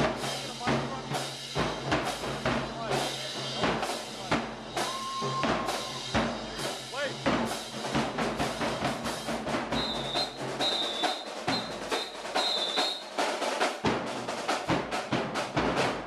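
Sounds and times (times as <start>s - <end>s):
marching drums: 0.0s - 16.0s.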